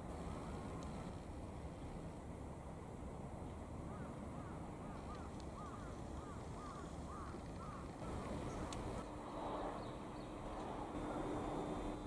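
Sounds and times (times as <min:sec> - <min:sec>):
low outdoor rumble: 0:00.0 - 0:12.0
steady low hum: 0:00.0 - 0:12.0
bird calling: 0:03.9 - 0:09.0.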